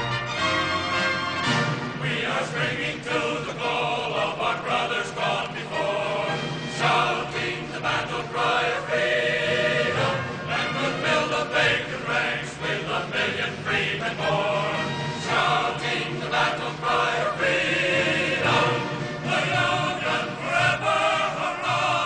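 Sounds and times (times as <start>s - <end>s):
choir singing: 1.0s - 22.0s.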